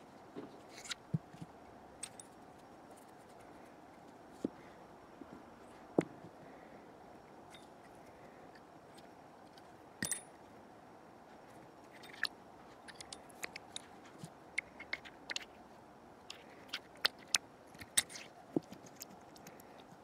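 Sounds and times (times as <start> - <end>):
faint steady hiss: 0.0 - 20.0
small metal parts clicking: 11.9 - 13.9.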